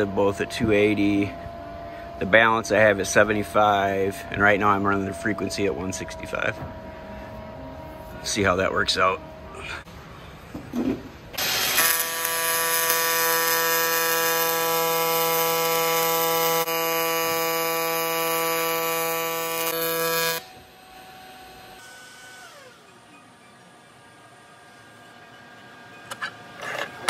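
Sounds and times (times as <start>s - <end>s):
welding arc buzz: 11.3s - 23.4s.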